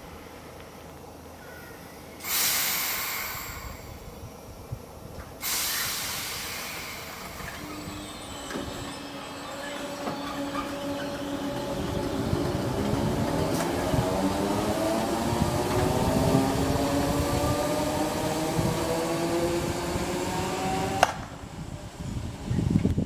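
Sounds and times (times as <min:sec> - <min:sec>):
traction motors whining: 0:05.2 - 0:22.9
wheels rumbling on rails: 0:06.1 - 0:23.0.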